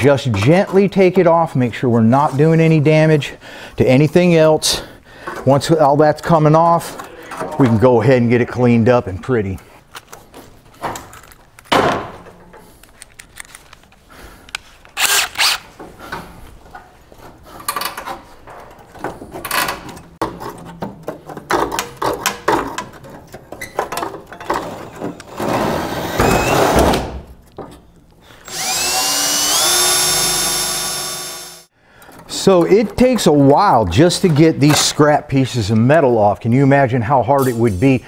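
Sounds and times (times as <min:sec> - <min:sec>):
metal clicks snaps and scrapes: 0:12.8 - 0:15.0
electric drill whining: 0:15.0 - 0:15.6, 0:25.8 - 0:26.8, 0:28.4 - 0:31.7.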